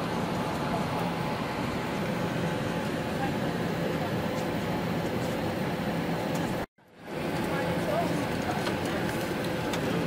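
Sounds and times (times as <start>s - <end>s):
faint voices: 7.2s - 10.0s.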